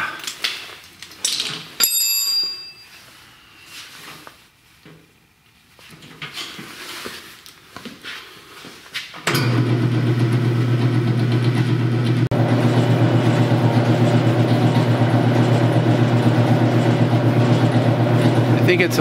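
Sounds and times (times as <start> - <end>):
bandsaw motor humming: 9.3 - 19.0.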